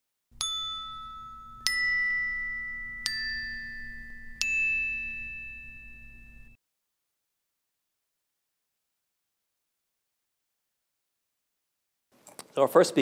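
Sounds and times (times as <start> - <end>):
bell-like chime notes: 0.4 - 6.6.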